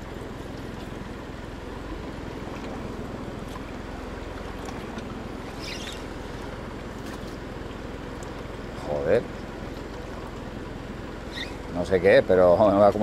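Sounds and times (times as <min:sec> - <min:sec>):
boat engine idling: 0:00.0 - 0:13.0
high squeak: 0:05.5 - 0:06.1, 0:11.2 - 0:11.7.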